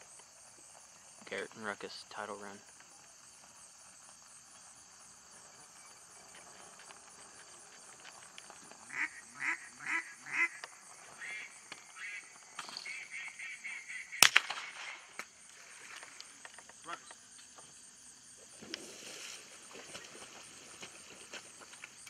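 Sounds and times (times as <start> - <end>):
insects trilling: 0.0 - 22.0
duck call quacks: 8.9 - 10.6
shotgun blast: 14.2 - 15.2.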